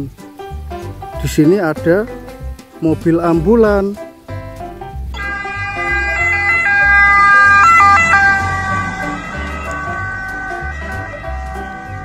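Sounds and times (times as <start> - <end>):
two-tone ambulance siren: 5.2 - 12.0.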